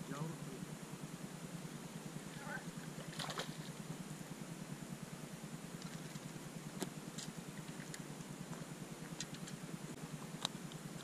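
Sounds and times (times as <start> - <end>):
fish splashing at water surface: 3.0 - 3.7.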